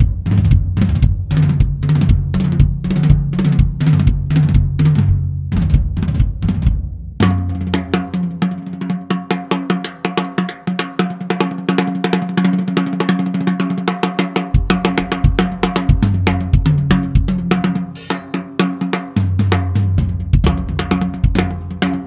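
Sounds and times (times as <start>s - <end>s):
bass drum hits: 0.0s - 7.9s, 14.6s - 17.4s
tom drum hits: 0.0s - 8.2s, 14.6s - 17.4s, 18.0s - 18.7s
fast snare drum roll: 0.0s - 22.0s.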